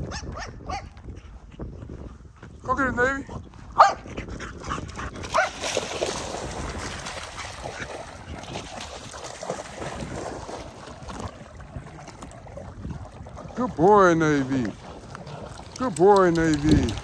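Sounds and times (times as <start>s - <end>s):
dogs splashing through water: 4.8s - 17.0s.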